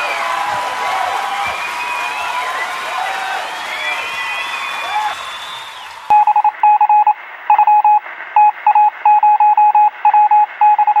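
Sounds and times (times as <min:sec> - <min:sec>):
morse code beeps: 0:06.1 - 0:11.0.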